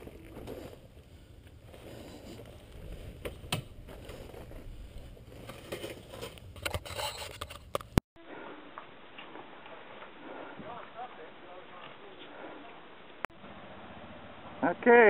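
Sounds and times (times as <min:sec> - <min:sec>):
gravel crackling under tyres: 0:00.0 - 0:08.0
outdoor ambience: 0:00.0 - 0:15.0.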